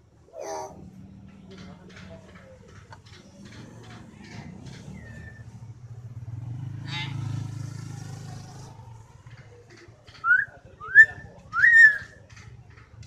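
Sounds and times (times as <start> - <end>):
passing motorcycle hum: 0.4 - 13.0
myna bird whistling: 10.2 - 12.2.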